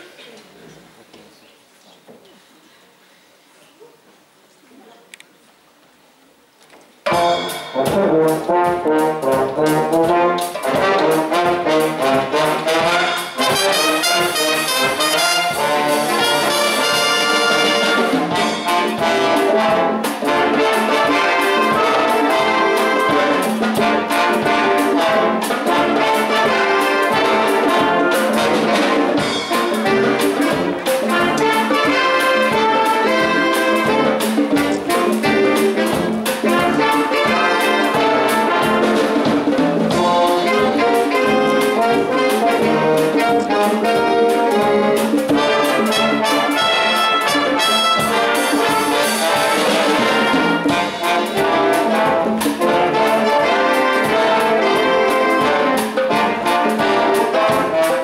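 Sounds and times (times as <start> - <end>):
wind band with drum kit: 5.2 - 58.0.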